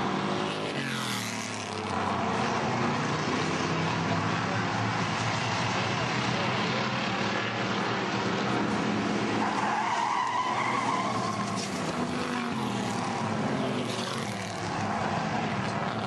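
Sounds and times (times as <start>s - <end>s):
race car engines running hard: 0.0s - 16.0s
tyres squealing: 9.4s - 14.2s.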